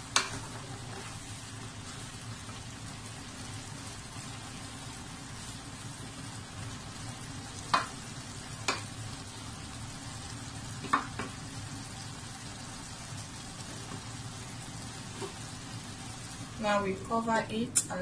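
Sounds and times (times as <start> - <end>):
wooden spatula stirring food: 0.0 - 9.3
low sizzle from pan: 0.0 - 18.0.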